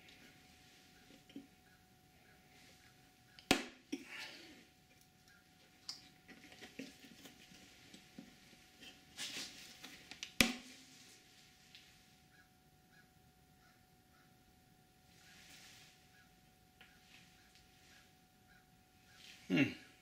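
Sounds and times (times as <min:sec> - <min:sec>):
rustling and scraping of plastic: 0:05.6 - 0:11.8.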